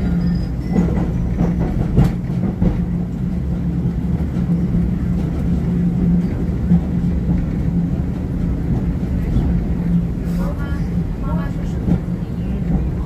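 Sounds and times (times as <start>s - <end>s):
tram wheels rumbling on rail: 0.0s - 13.0s.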